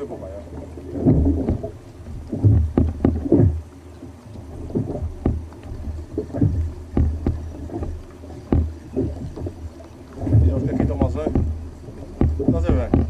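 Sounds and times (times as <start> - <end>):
water slapping against kayak hull: 0.0 - 13.0.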